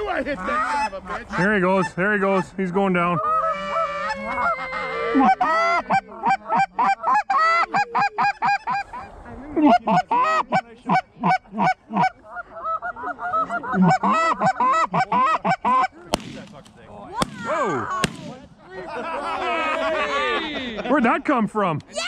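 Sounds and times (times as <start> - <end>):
goose calls honking and clucking: 0.0 - 16.0.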